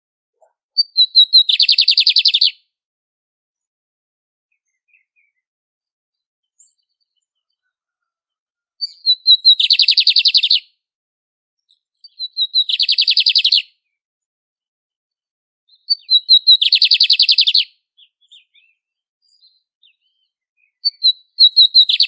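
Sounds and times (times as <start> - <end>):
bird singing with trill: 0.4 - 2.6, 4.5 - 5.5, 6.2 - 8.0, 8.8 - 10.7, 11.6 - 14.0, 15.7 - 22.0.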